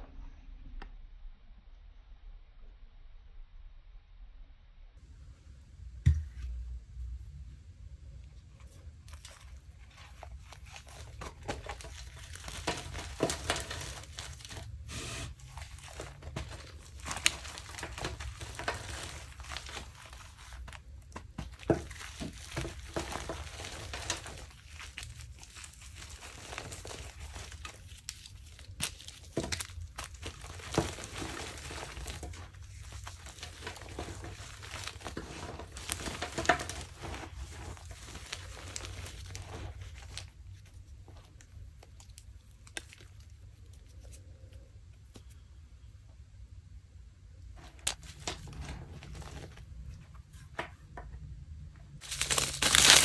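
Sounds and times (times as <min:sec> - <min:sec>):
chalk chunks snapping: 0:15.4 - 0:40.3, 0:41.2 - 0:44.3, 0:52.0 - 0:53.0.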